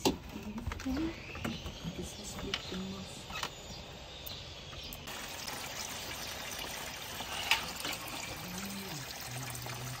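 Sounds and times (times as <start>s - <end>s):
water splashing into a tub: 5.1s - 10.0s.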